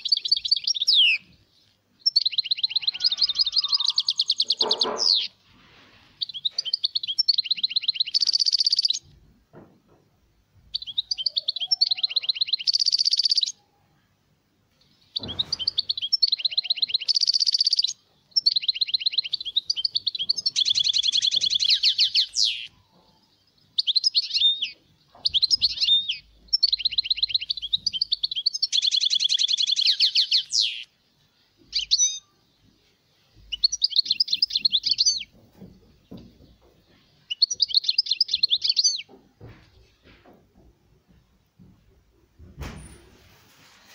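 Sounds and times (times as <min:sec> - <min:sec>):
finch singing twittering trills: 0:00.0 - 0:01.3, 0:02.0 - 0:05.4, 0:06.2 - 0:09.1, 0:10.7 - 0:13.6, 0:15.0 - 0:30.9, 0:31.6 - 0:32.3, 0:33.4 - 0:39.2.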